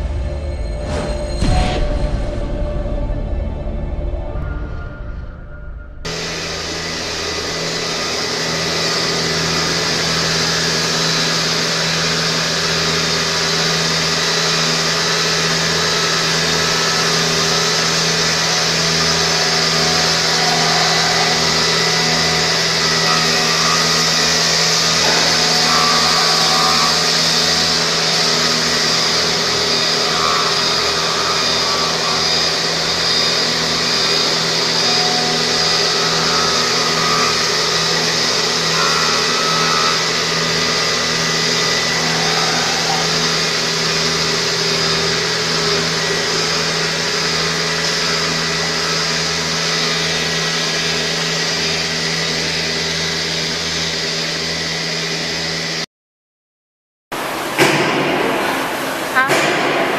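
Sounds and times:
machine motors humming: 0.0s - 55.8s
abrasive belts sanding wood: 6.1s - 52.2s.

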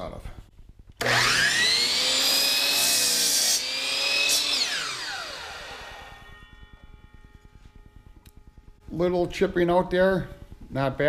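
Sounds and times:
miter saw cutting wood: 1.0s - 7.2s
saw blade winding down: 1.0s - 8.2s.

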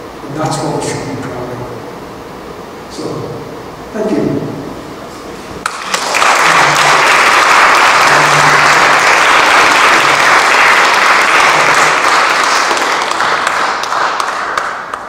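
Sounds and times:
audience applauding: 5.6s - 15.0s.

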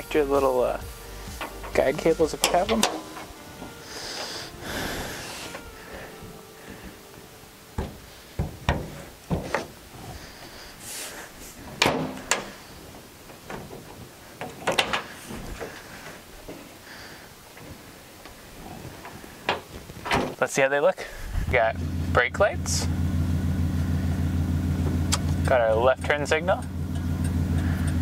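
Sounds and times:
tailgate metal clicks and clunks: 1.2s - 4.3s, 7.7s - 9.8s, 11.6s - 15.8s, 19.0s - 20.4s.

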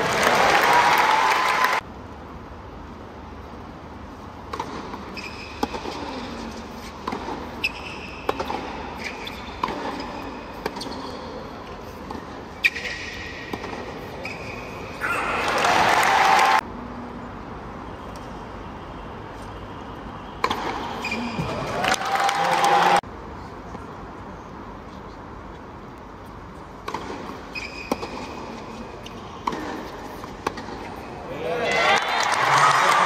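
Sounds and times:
crowd applause: 0.0s - 1.8s, 15.4s - 16.6s, 21.6s - 23.0s, 31.8s - 33.0s
racket striking tennis ball: 4.4s - 6.2s, 6.8s - 11.2s, 12.0s - 15.0s, 20.4s - 21.6s, 26.8s - 31.1s
shoe squeaks on court: 5.1s - 5.6s, 7.6s - 8.3s, 12.6s - 13.2s, 14.2s - 15.2s, 27.4s - 28.4s.

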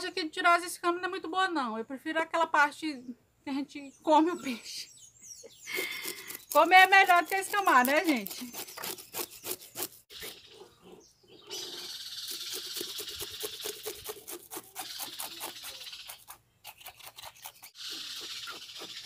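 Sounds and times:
knife scraping fish scales: 5.7s - 10.5s, 12.0s - 19.0s.

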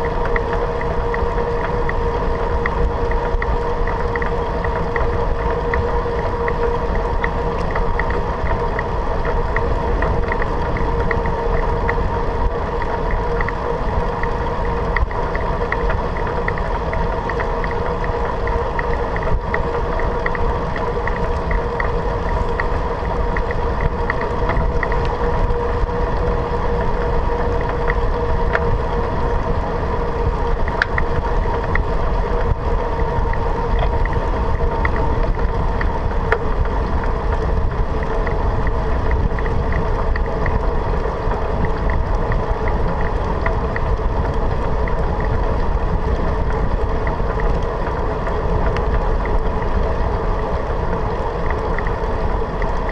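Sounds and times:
bicycle tyres rolling on asphalt: 0.0s - 52.9s
light ticks: 0.0s - 52.9s
steady hum: 0.0s - 52.9s
wind: 0.0s - 52.9s.

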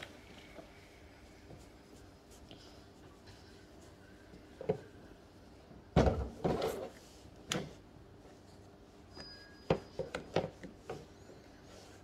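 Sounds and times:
faint squeak: 9.1s - 10.2s.

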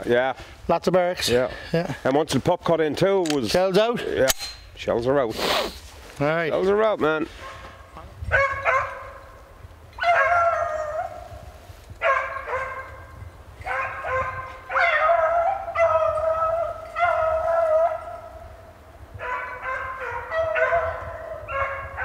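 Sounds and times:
distant dogs baying: 7.2s - 22.0s.

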